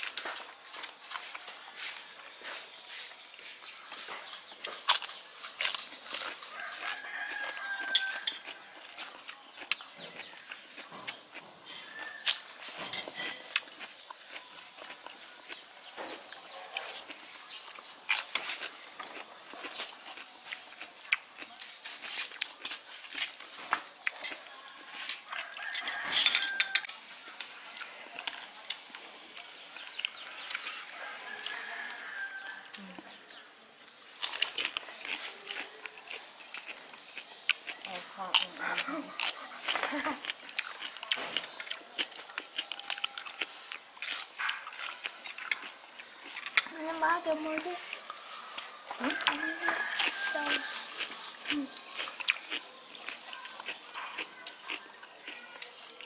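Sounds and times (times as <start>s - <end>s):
rooster crowing: 6.5s - 8.5s, 25.3s - 26.9s, 30.9s - 32.9s, 49.0s - 51.2s
spoons and dishes clinking: 11.0s - 13.8s, 25.4s - 27.0s
dishes clattering: 12.7s - 13.6s, 25.8s - 26.9s
tableware clinking on wooden table: 25.7s - 26.9s.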